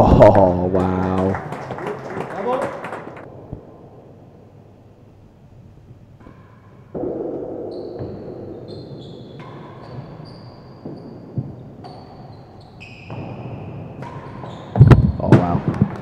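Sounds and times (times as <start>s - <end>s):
tennis ball struck and bouncing: 14.0s - 16.0s.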